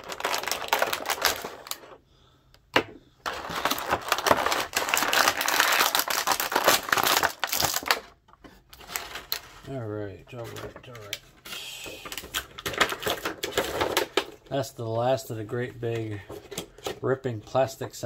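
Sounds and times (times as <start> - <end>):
plastic packaging crinkling: 0.0 - 2.0, 3.2 - 9.7, 12.0 - 14.4.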